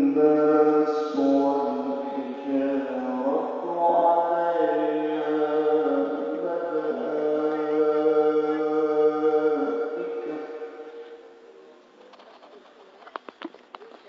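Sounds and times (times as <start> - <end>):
man reciting melodically: 0.0 - 11.4.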